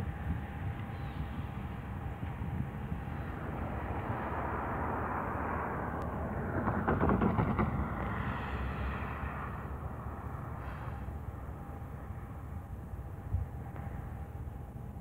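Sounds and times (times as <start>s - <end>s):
freight train wheels rumbling on rail: 0.0s - 15.0s
clicks of train wheels: 6.0s - 9.5s.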